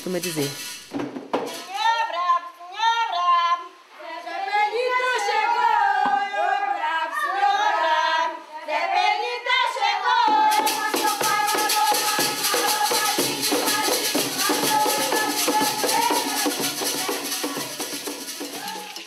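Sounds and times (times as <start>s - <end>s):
rattles shaking fast beat: 0.0s - 1.8s, 10.5s - 19.0s
women singing: 1.6s - 19.0s.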